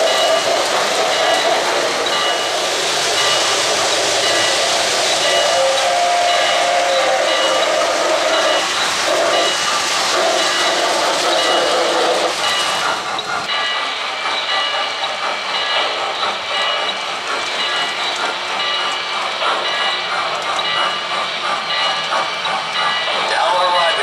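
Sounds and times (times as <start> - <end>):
steam hiss and running rumble: 0.0 - 24.0
model train steam whistle: 5.2 - 12.2.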